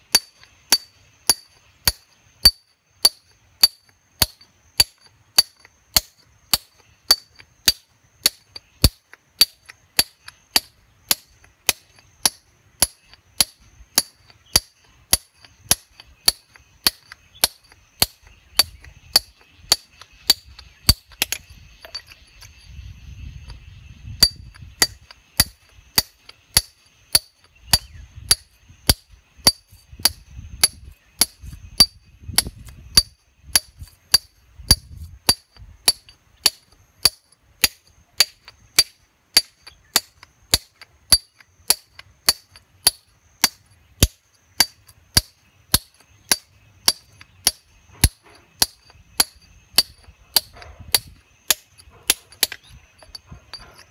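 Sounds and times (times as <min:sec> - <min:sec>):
hammer striking steel chisel: 0:00.1 - 0:22.7, 0:24.2 - 0:53.9.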